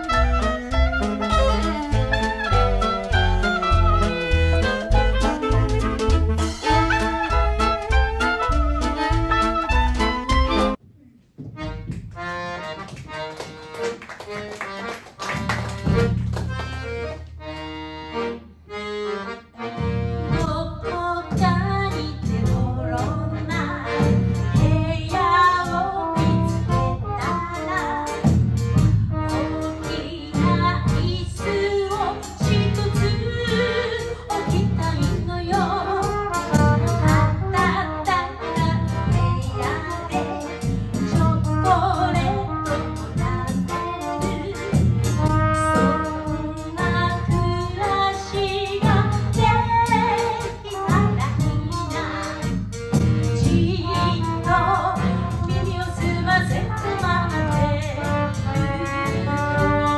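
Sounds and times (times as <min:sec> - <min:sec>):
accordion melody: 0:00.0 - 0:10.8, 0:11.4 - 0:59.9
bass drum beat: 0:00.0 - 0:10.8, 0:34.5 - 0:37.8
woman singing: 0:20.4 - 0:28.2, 0:29.4 - 0:40.5, 0:41.1 - 0:52.5, 0:53.4 - 0:59.9.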